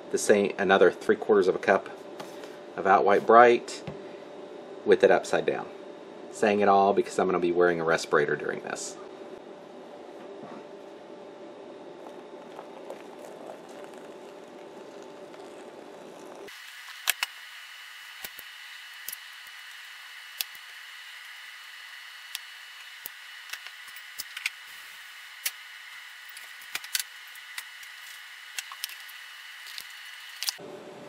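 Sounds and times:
faint steady hiss and hum: 0.0s - 31.0s
water pouring into plastic bowl: 12.0s - 16.5s.

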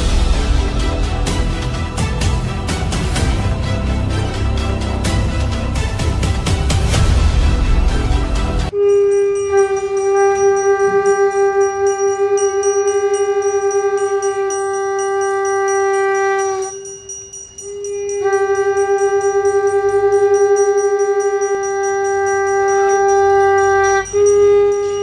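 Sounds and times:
loud ensemble music: 0.0s - 8.7s
conch shell blasts: 8.7s - 25.0s.

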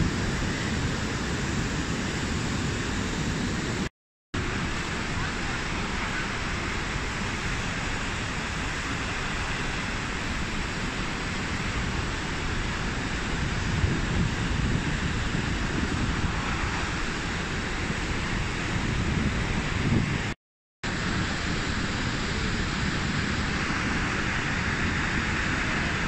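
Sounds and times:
waterfall crashing onto rocks: 4.4s - 19.0s.

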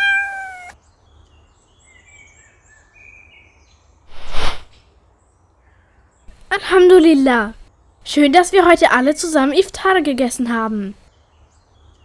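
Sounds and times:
faint birds chirping: 0.0s - 12.0s
loud rushing whoosh: 4.1s - 4.7s.

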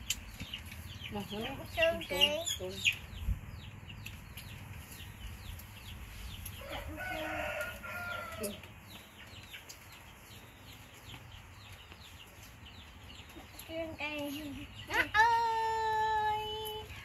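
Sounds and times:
rooster crowing: 6.6s - 8.6s.

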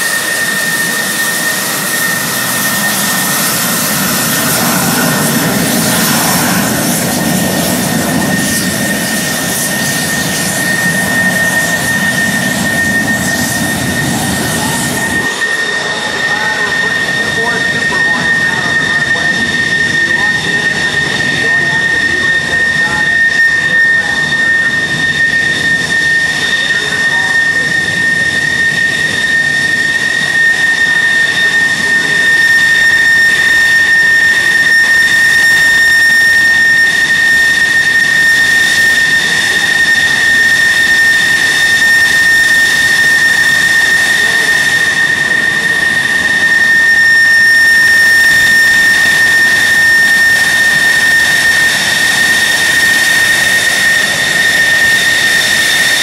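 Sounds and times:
jet engines whining: 0.0s - 56.0s.

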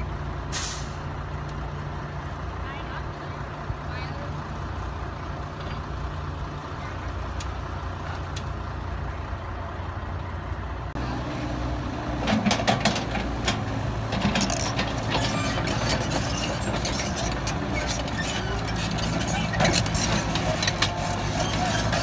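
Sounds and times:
excavator diesel engine running: 0.0s - 22.0s
metallic clanks and knocks: 12.2s - 22.0s.

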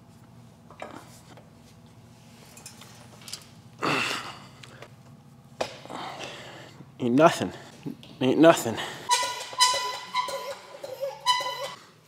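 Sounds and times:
man exhaling with effort: 3.8s - 4.6s.

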